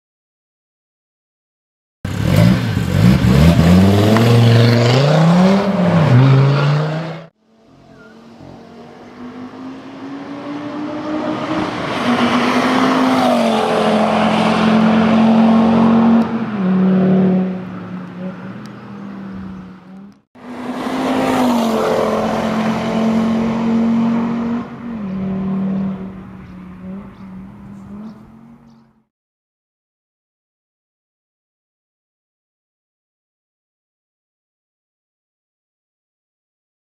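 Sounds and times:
race car passing at full throttle: 2.1 - 28.9
car engine revving: 2.1 - 29.0.

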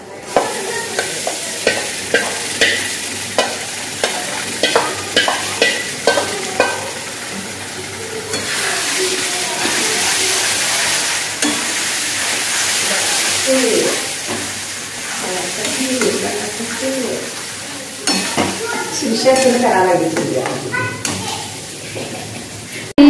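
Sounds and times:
onions sizzling in oil: 0.0 - 23.0
spoon knocking against pan: 0.3 - 7.0, 18.0 - 18.6.

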